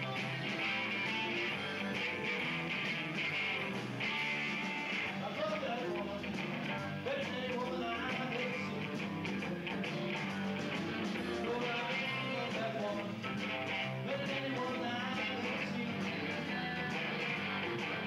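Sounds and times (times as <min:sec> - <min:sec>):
rock band playing: 0:00.0 - 0:18.0
person singing into microphone: 0:05.1 - 0:09.0, 0:11.2 - 0:13.2, 0:14.0 - 0:17.4.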